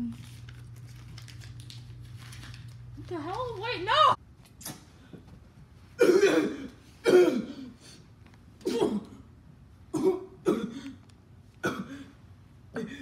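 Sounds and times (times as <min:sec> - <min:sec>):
person coughing hard: 0:06.0 - 0:07.8, 0:08.6 - 0:09.2, 0:09.9 - 0:11.0, 0:11.6 - 0:13.0.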